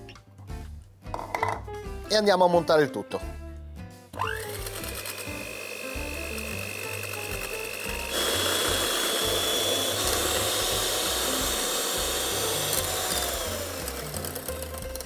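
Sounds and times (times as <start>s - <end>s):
electric mixer whirring: 4.2s - 15.0s.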